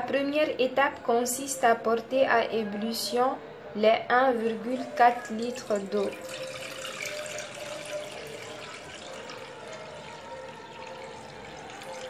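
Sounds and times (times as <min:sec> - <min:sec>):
water pouring into metal pot: 0:04.4 - 0:12.0.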